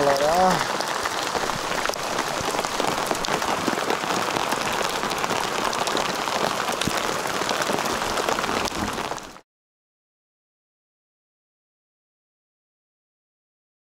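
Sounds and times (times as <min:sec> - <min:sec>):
hail and rain on a boat: 0:00.0 - 0:09.4.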